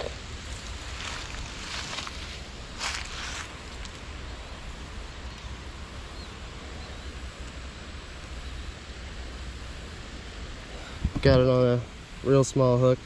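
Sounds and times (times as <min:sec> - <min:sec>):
wind through grass and leaves: 0:00.0 - 0:13.0
wind buffeting microphone: 0:10.9 - 0:11.5.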